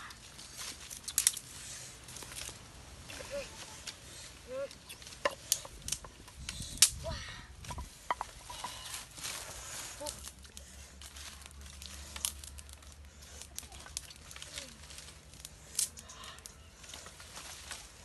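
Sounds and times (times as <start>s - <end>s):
sharp cracks of twigs: 0.0s - 3.1s, 4.8s - 7.8s, 9.9s - 17.8s
twigs and leaves rustling: 0.0s - 18.0s.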